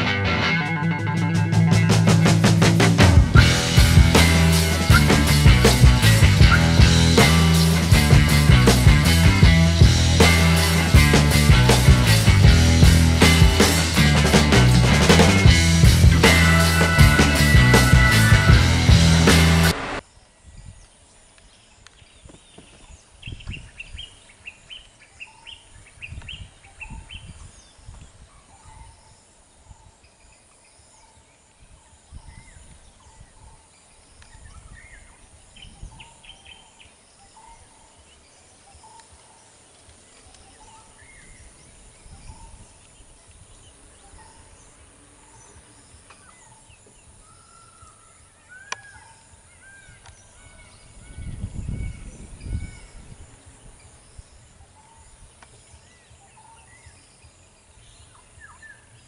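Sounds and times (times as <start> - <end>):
low rumbles: 0.0 - 20.0.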